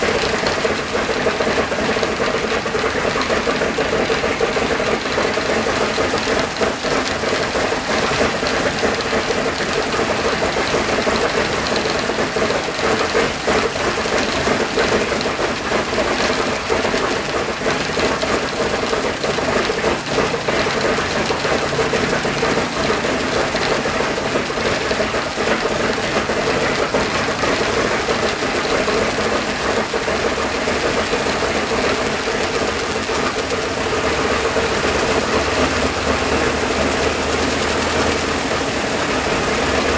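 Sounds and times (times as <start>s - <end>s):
radial aircraft engine running: 0.0s - 39.9s.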